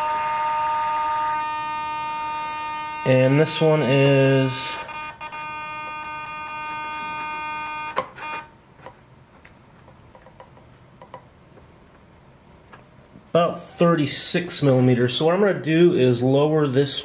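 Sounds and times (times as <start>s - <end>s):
servo buzzing: 0.0s - 8.5s.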